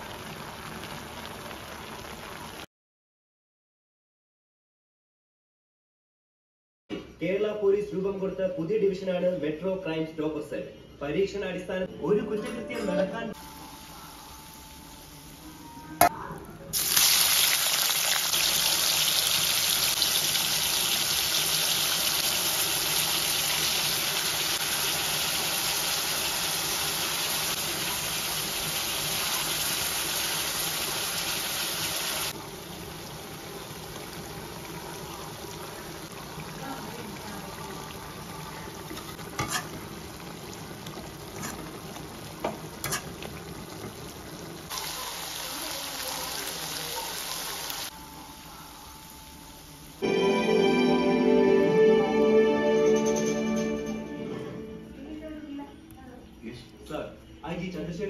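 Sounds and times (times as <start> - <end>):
chicken sizzling in hot oil: 0.0 - 2.7, 16.7 - 50.0.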